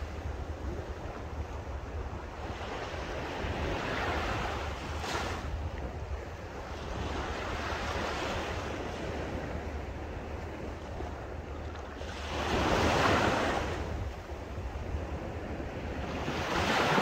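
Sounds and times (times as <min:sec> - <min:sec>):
waves washing onto beach: 0:00.0 - 0:17.0
wind rumble on microphone: 0:00.0 - 0:17.0.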